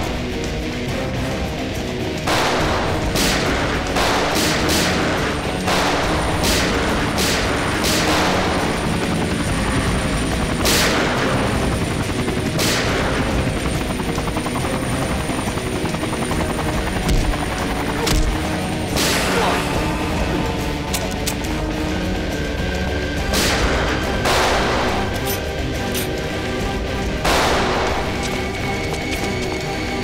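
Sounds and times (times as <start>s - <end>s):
gunshots with echo: 2.2s - 8.9s, 10.6s - 11.6s, 23.2s - 25.2s, 27.2s - 28.4s.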